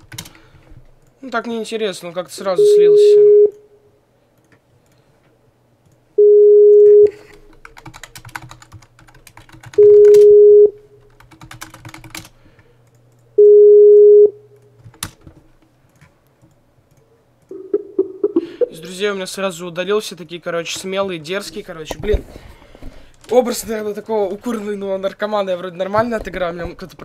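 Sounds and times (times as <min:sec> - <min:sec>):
computer keyboard typing: 0:00.0 - 0:00.4, 0:07.3 - 0:10.3, 0:11.0 - 0:13.3, 0:14.8 - 0:18.4
ringback tone beeps: 0:02.6 - 0:03.6, 0:06.2 - 0:07.2, 0:09.8 - 0:10.8, 0:13.4 - 0:14.4, 0:17.5 - 0:18.8.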